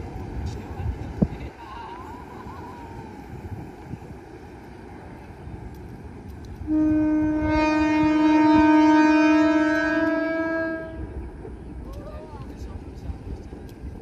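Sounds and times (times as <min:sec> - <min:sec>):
locomotive horn blast: 0:06.6 - 0:11.2.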